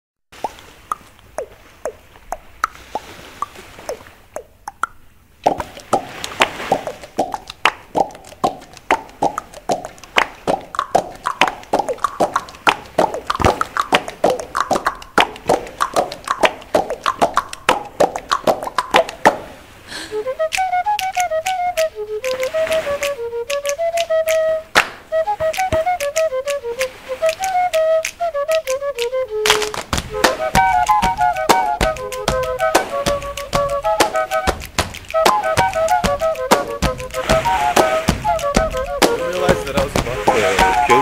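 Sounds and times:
sharp pitched pops: 0:00.4 - 0:19.4
fast pitched drum beat: 0:38.1 - 0:40.8.

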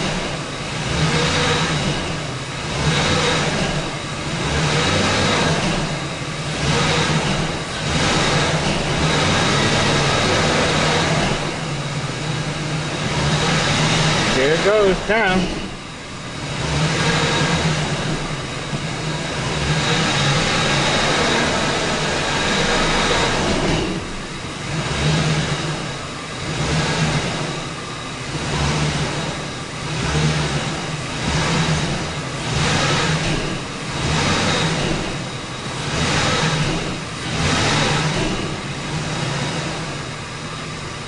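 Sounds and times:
truck engine under throttle: 0:00.0 - 0:41.0.

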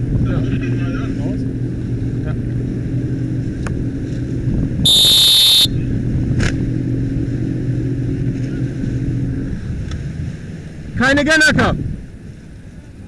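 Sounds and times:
outboard motor running: 0:00.0 - 0:13.0
high-pitched whistle blast: 0:04.9 - 0:05.7.

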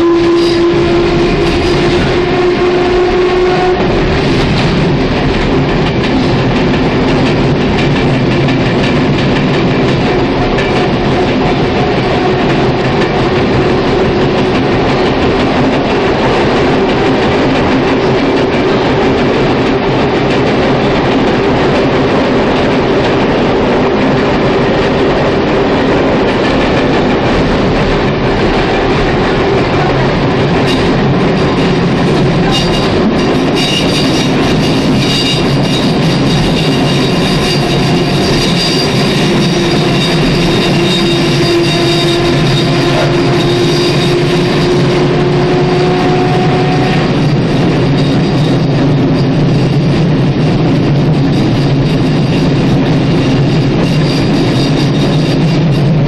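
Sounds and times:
train motor humming tone: 0:00.0 - 0:56.0
train wheels rumbling: 0:00.0 - 0:56.0.

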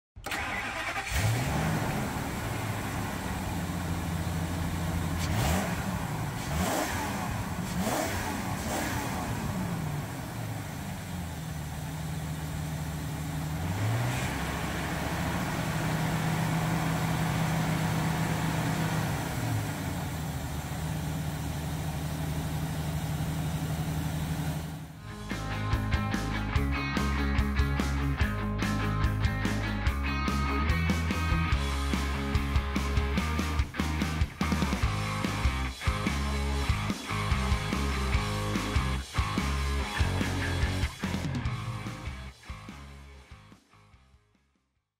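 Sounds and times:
engine idling: 0:00.2 - 0:43.4
engine revving blips: 0:04.6 - 0:11.2, 0:13.5 - 0:20.1, 0:34.4 - 0:42.9.

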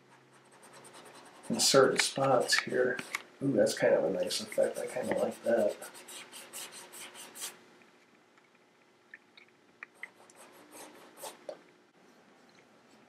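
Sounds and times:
paintbrush scrubbing on canvas: 0:04.3 - 0:07.6.

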